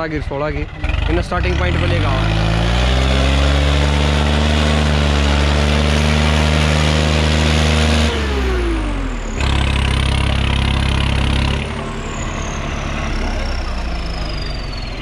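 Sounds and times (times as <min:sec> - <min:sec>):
tractor diesel engine under load: 0:00.0 - 0:15.0.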